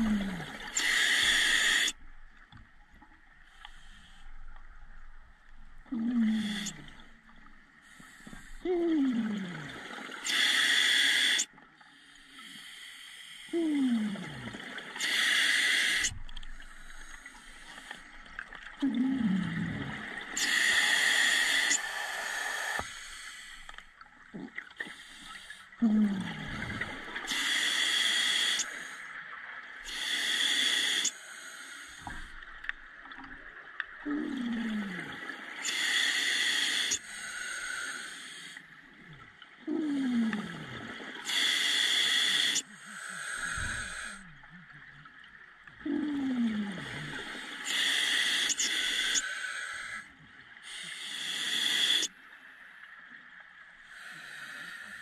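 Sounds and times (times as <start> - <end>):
hissing regulator breaths: 0.7 - 1.9, 20.4 - 23.8, 35.6 - 38.6, 47.4 - 50.1, 50.7 - 52.1.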